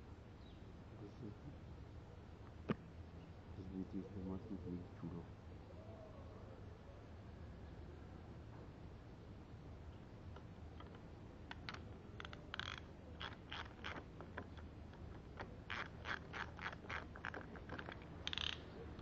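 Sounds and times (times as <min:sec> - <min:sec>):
ratchet wrench clicking: 0:15.4 - 0:18.6.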